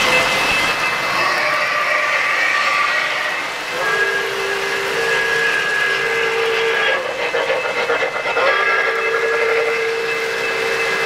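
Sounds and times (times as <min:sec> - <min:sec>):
model train whistle: 0:00.0 - 0:11.0
model train cars clattering on track: 0:03.7 - 0:11.0.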